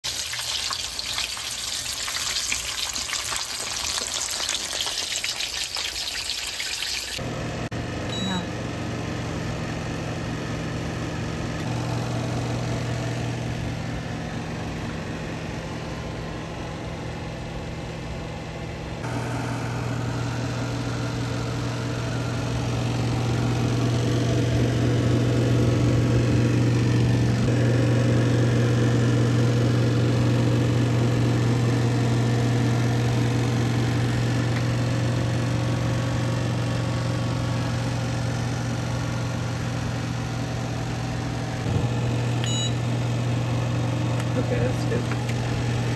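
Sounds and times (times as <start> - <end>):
low mechanical hum: 7.2 - 45.9.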